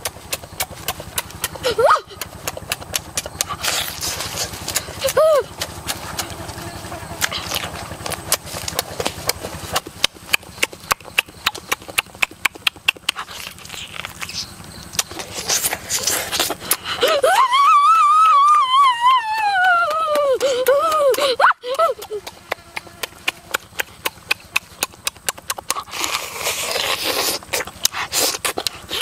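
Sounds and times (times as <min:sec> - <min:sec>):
wet chewing and lip-smacking: 0:00.0 - 0:17.2, 0:18.1 - 0:29.0.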